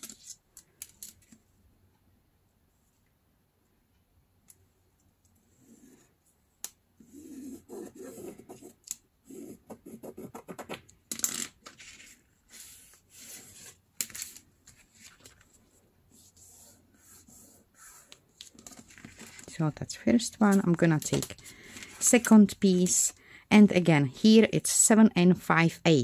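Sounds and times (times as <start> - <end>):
pencil scratching along ruler: 7.0 - 10.8, 12.5 - 13.8, 16.1 - 18.2.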